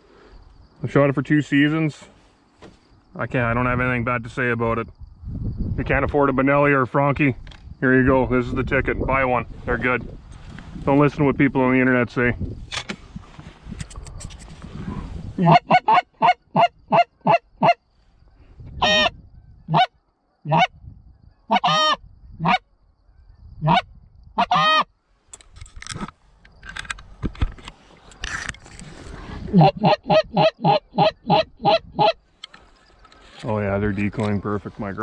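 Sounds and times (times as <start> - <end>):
geese honking: 15.4 - 17.8, 18.8 - 19.1, 19.7 - 19.9, 20.5 - 20.7, 21.5 - 22.6, 23.6 - 24.9, 29.5 - 32.2.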